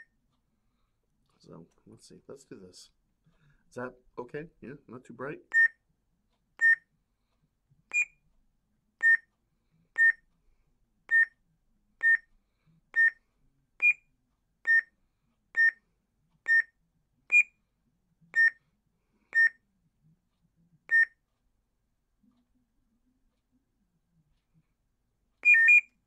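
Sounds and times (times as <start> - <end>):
electronic beeps: 5.5 - 5.8, 6.6 - 6.9, 7.9 - 8.2, 9.0 - 9.3, 10.0 - 10.2, 11.1 - 11.4, 13.0 - 13.2, 13.8 - 14.0, 14.7 - 14.9, 15.6 - 15.8, 16.5 - 16.7, 18.3 - 18.6, 20.9 - 21.2, 25.4 - 26.0.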